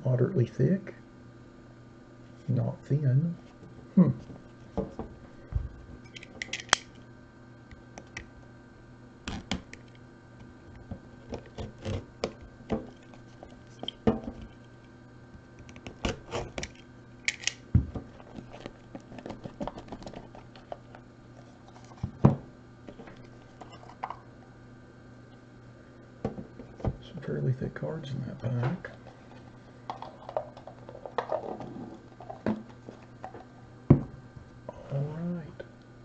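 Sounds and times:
faint steady hum: 0:00.0 - 0:36.0
cards clicking and scraping: 0:06.1 - 0:06.9, 0:11.2 - 0:14.9, 0:15.6 - 0:22.1.

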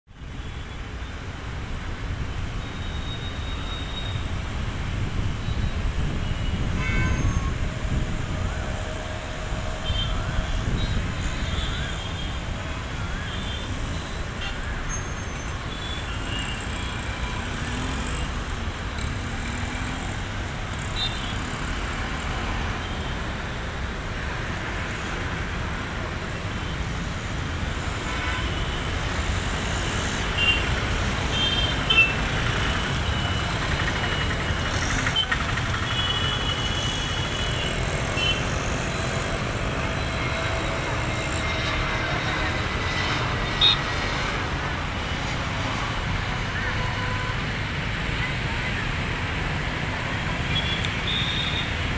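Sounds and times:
rumble of cars: 0:00.1 - 0:51.9.

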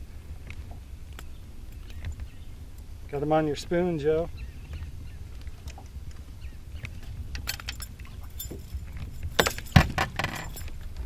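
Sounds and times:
metal lure and hook clinking: 0:07.3 - 0:11.0.

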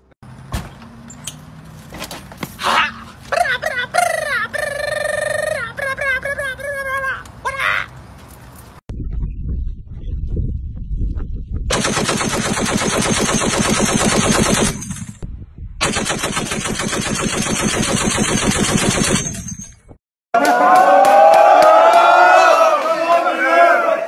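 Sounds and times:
low rumble: 0:08.9 - 0:11.9, 0:14.7 - 0:16.2
machine gun automatic fire: 0:11.7 - 0:15.2, 0:15.8 - 0:19.7.

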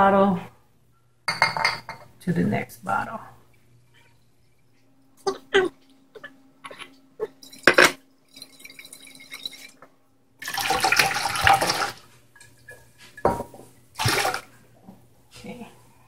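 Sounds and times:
liquid splashing into metal pot: 0:14.0 - 0:14.5.

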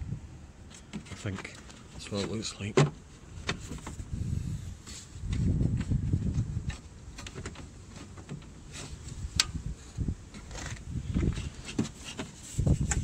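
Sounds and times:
wind rumble on microphone: 0:00.0 - 0:00.4, 0:03.3 - 0:07.6, 0:08.6 - 0:13.0.

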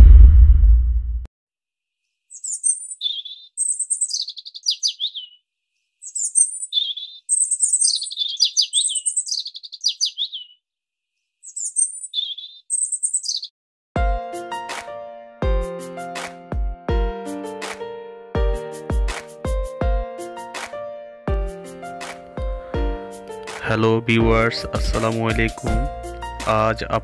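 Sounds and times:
low rumble: 0:00.0 - 0:01.3
songbird chirping: 0:02.0 - 0:13.6.

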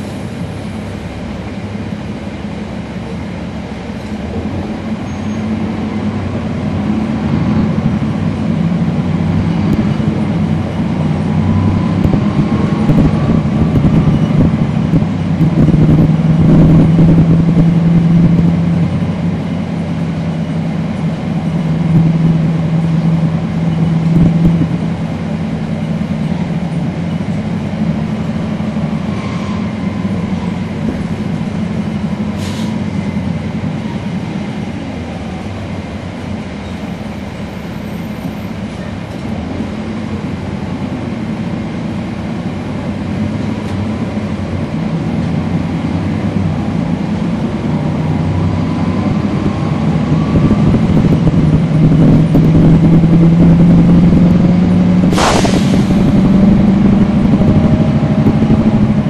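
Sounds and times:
bus diesel engine droning: 0:00.0 - 0:59.0.

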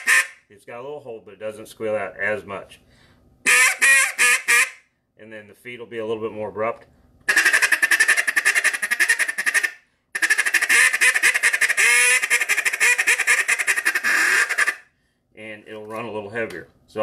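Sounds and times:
duck call feed chatter: 0:00.0 - 0:00.4, 0:03.5 - 0:04.8, 0:07.3 - 0:14.8.

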